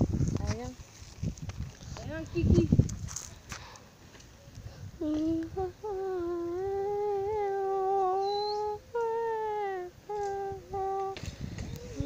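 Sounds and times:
child humming: 0:05.0 - 0:12.0.

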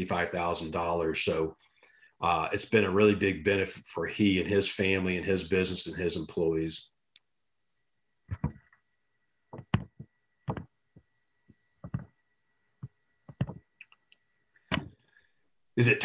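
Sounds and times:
faint high whine: 0:00.0 - 0:16.0
irregular knocks and clicks: 0:09.5 - 0:12.2, 0:12.8 - 0:15.0.

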